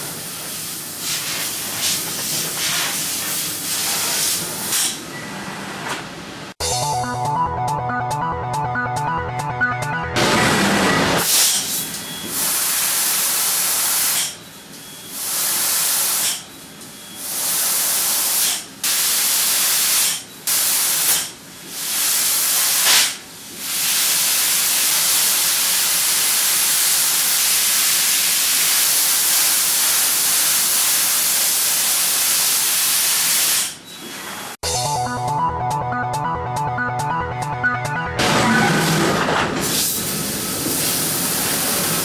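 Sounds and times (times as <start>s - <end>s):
laser cutter gas hiss: 11.3s - 14.4s, 15.1s - 16.5s, 17.2s - 33.8s, 39.7s - 42.0s.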